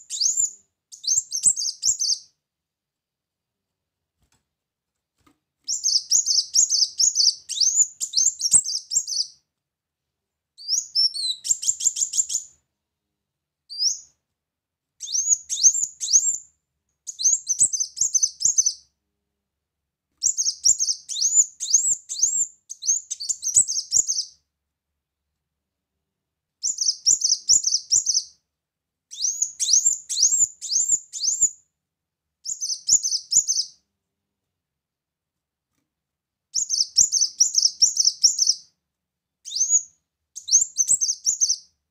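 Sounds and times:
sunbird twittering song: 0.0s - 2.3s, 5.7s - 9.4s, 20.2s - 24.4s, 26.6s - 28.3s, 29.1s - 31.5s, 32.5s - 33.8s, 36.6s - 38.6s, 39.5s - 41.7s.

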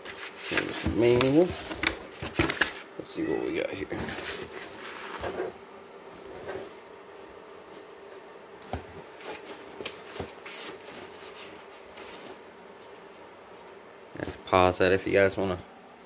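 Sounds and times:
paper pages rustling: 0.0s - 2.9s
faint steady hum: 0.0s - 16.0s.

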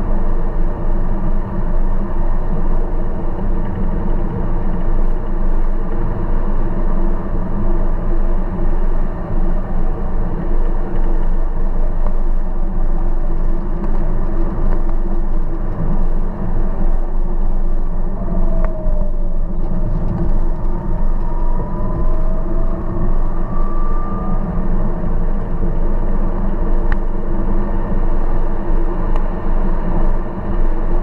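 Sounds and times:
car engine and road rumble: 0.0s - 31.0s
faint tone climbing in pitch: 17.9s - 25.9s.

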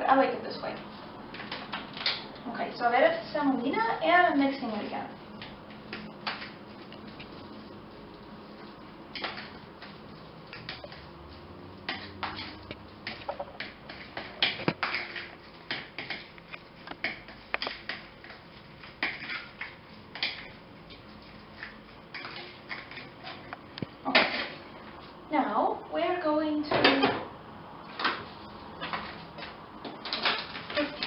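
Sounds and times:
fork mashing dough: 4.5s - 23.6s
fork scraping container: 11.9s - 13.3s.

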